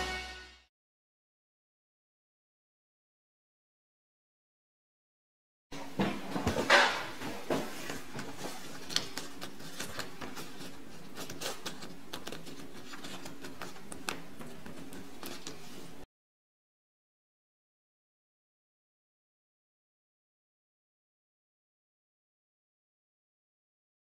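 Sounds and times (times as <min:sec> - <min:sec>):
paper banknote crinkling: 0:08.1 - 0:16.0.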